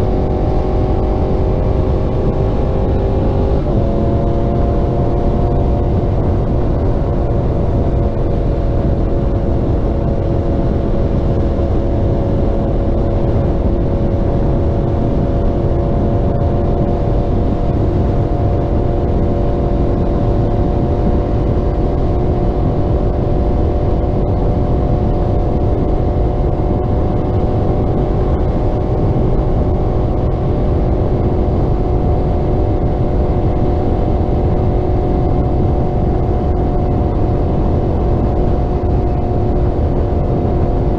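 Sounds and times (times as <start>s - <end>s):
motorcycle engine cruising: 0.0s - 40.9s
wind on microphone: 0.0s - 40.9s.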